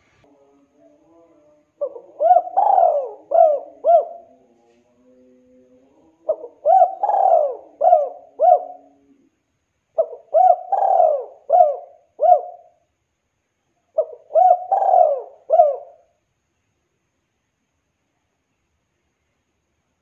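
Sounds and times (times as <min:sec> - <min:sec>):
dove cooing: 0:01.8 - 0:09.3, 0:10.0 - 0:12.8, 0:14.0 - 0:16.1.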